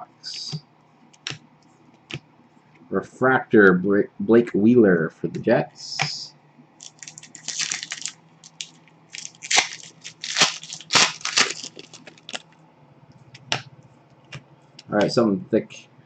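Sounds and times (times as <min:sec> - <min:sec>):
foil wrapper crinkling and tearing: 0:06.8 - 0:12.4.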